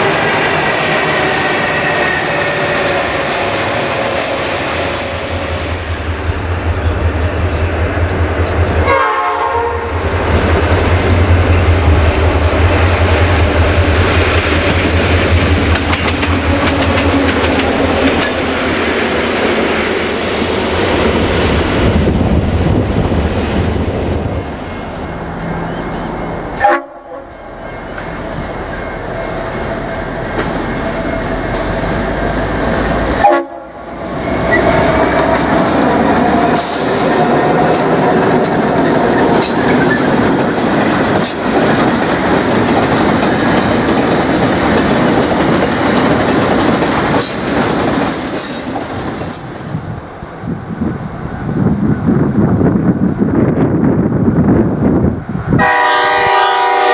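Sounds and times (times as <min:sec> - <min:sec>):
locomotive horn: 0:08.8 - 0:10.1, 0:26.6 - 0:27.6, 0:33.1 - 0:35.1, 0:55.6 - 0:56.9
locomotives rumbling: 0:09.9 - 0:26.6, 0:33.9 - 0:48.1
train wheels clattering: 0:10.3 - 0:20.5, 0:33.9 - 0:49.6.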